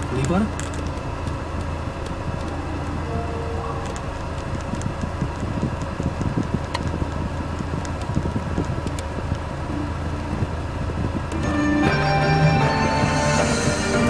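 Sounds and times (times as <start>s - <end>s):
sharp clicks: 0.0s - 3.1s, 3.7s - 9.6s
steady low hum: 0.0s - 14.0s.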